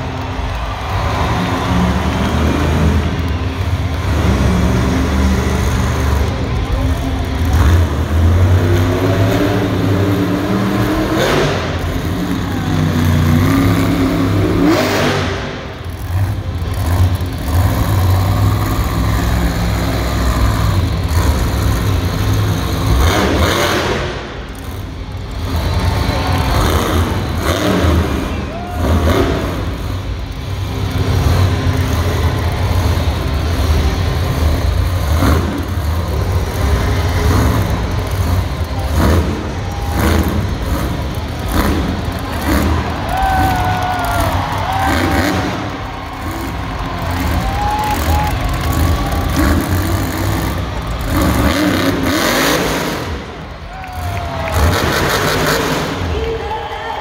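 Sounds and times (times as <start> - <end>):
truck engine revving hard: 0.0 - 56.5.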